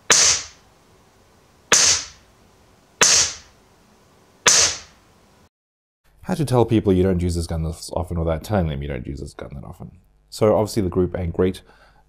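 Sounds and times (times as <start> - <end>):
air pistol shots: 0.0 - 0.6, 1.7 - 2.2, 3.0 - 3.5, 4.4 - 5.0.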